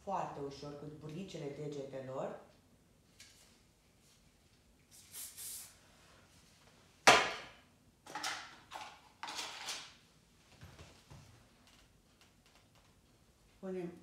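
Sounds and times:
tools rattling and scraping: 0:08.1 - 0:10.0.

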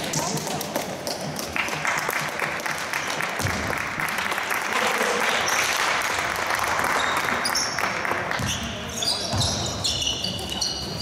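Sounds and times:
spectators applauding: 0:01.3 - 0:08.4.

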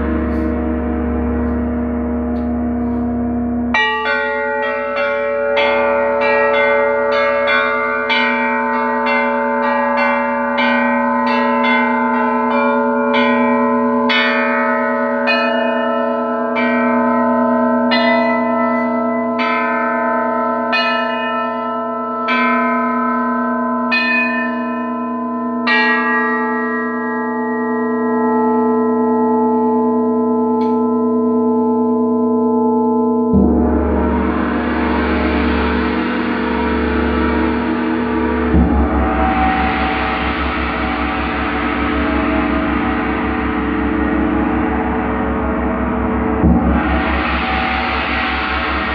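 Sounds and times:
gong struck with soft mallet: 0:00.0 - 0:06.8, 0:28.7 - 0:48.9
tuned metal bells struck: 0:00.0 - 0:48.9.

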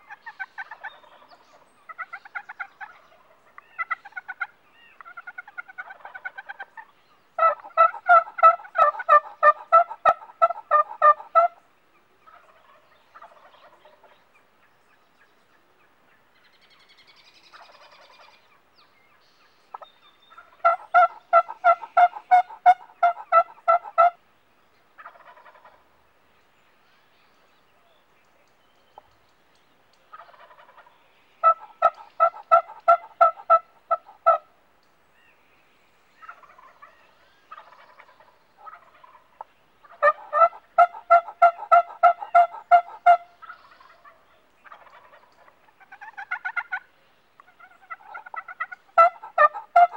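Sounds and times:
soft turkey calls: 0:00.0 - 0:26.0, 0:26.8 - 0:35.5, 0:36.1 - 0:49.9
turkey yelping: 0:01.9 - 0:06.8, 0:07.4 - 0:11.6, 0:19.7 - 0:24.2, 0:25.0 - 0:25.8, 0:30.1 - 0:34.4, 0:36.2 - 0:36.9, 0:37.5 - 0:49.9.

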